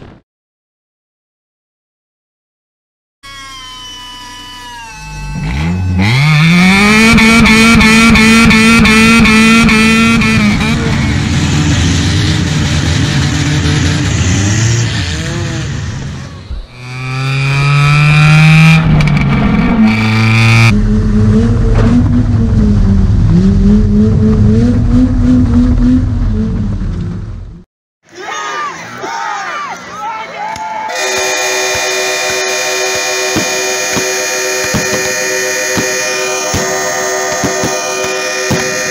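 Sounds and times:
car engine revving hard: 5.4 - 26.7.

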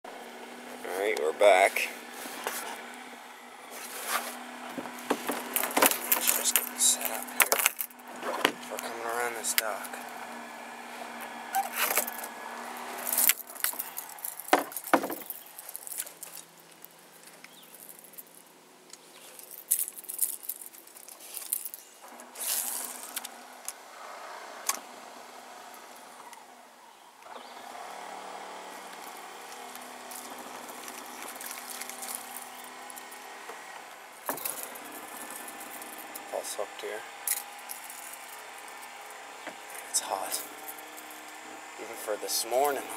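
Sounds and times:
steady low hum: 0.1 - 42.9.

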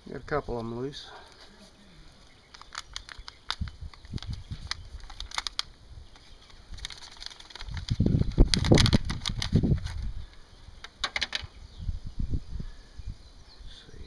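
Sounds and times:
plastic cell pack crinkling: 2.1 - 11.5.

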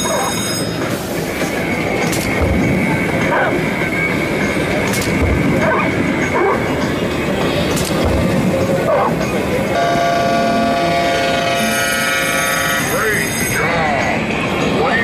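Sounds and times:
arcade machines rumbling clatter: 0.0 - 15.0
steady high electronic tone: 8.4 - 13.8.

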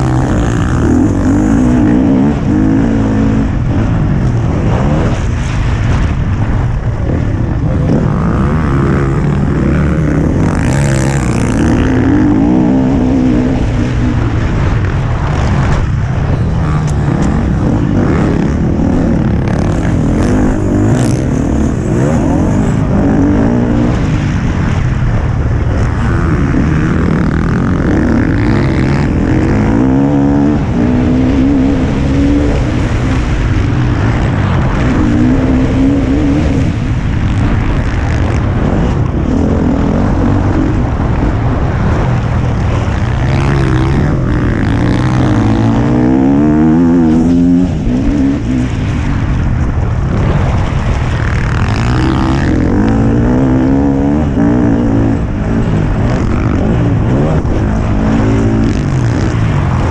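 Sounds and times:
motorbike engine revving: 0.0 - 59.9
wind rumble on microphone: 0.0 - 59.9.

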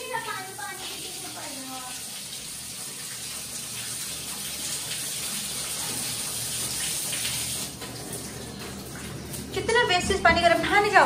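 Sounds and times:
shower water spraying: 0.0 - 11.0.

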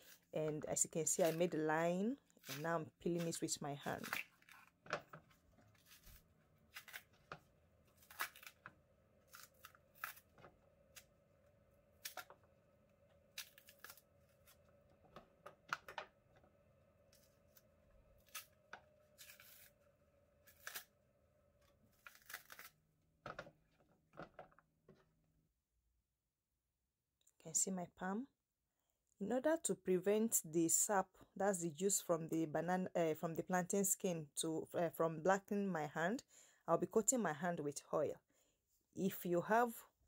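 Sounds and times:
plantain skin ripping: 1.1 - 5.0, 5.7 - 11.1, 12.0 - 12.4, 13.2 - 14.7, 17.1 - 19.8, 20.4 - 21.0, 21.8 - 22.8.

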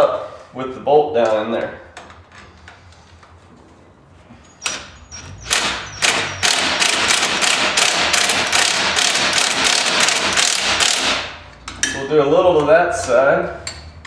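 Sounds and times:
impact driver rattling: 5.4 - 11.4.

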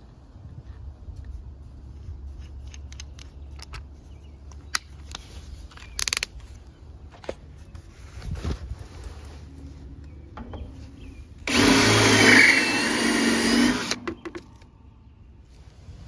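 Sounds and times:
drill chuck clicking: 11.5 - 14.1.

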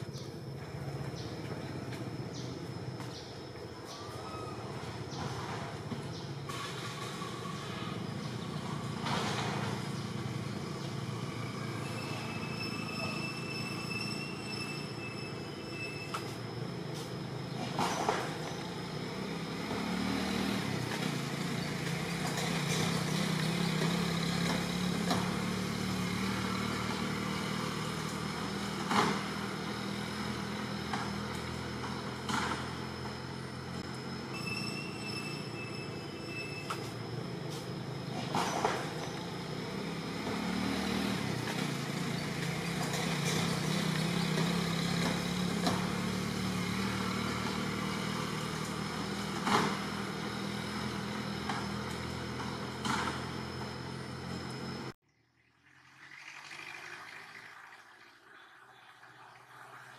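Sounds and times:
engine humming: 0.0 - 55.0
brief high whistle: 11.9 - 16.3, 34.3 - 36.9.

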